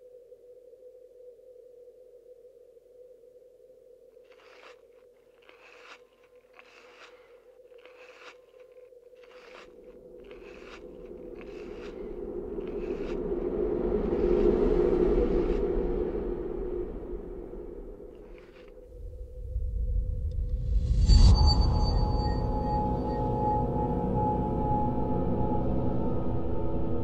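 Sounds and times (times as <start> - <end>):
short crisp crunching strokes: 4.2 - 19.0
rush of noise: 10.8 - 26.8.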